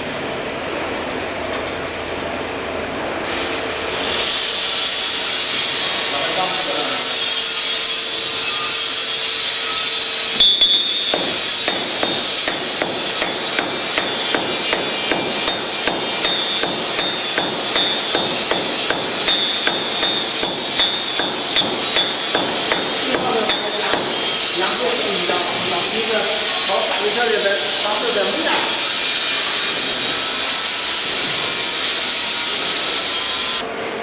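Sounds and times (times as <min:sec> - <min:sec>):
hammer blows ringing on anvil: 0:10.4 - 0:25.3.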